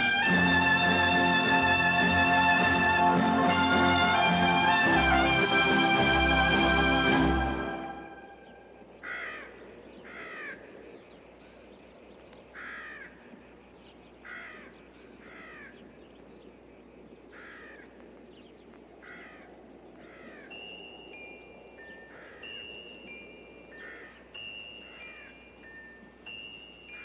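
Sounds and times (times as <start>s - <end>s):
faint steady hiss: 0.0s - 27.0s
crows cawing: 9.0s - 11.1s, 12.5s - 13.4s, 14.2s - 15.9s, 17.3s - 18.0s, 19.0s - 20.6s, 21.9s - 22.8s, 23.7s - 25.4s.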